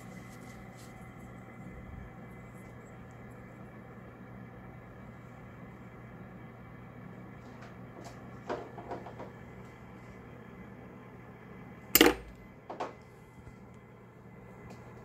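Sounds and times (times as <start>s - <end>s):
tweezers clacking on table: 12.0s - 12.3s.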